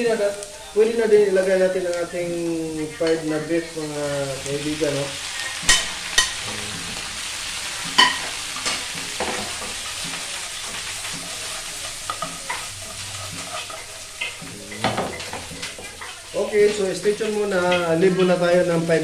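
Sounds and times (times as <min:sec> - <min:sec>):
food sizzling in a frying pan: 0:00.0 - 0:19.0
pan clattering: 0:07.8 - 0:18.4.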